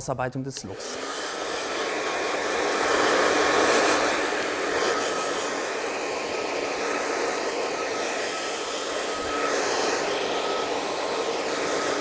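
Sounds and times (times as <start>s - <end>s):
hair dryer running: 0.6s - 12.0s.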